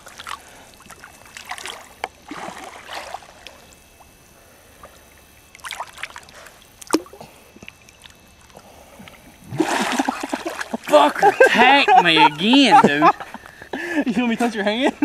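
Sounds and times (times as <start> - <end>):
water splash: 0.0 - 3.6, 5.5 - 7.2, 9.5 - 11.2
lake water lapping: 0.0 - 14.2.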